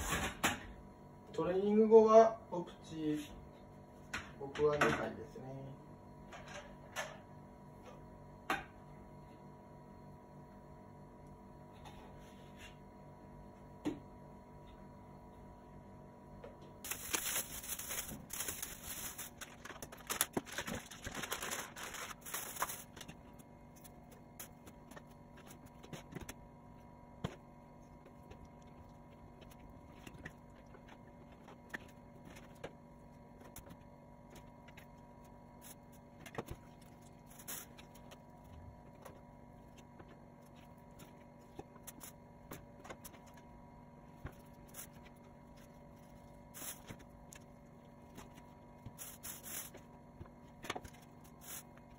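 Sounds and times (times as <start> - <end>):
faint steady hum: 0.0 - 51.9
plastic bag crinkling: 16.9 - 23.1.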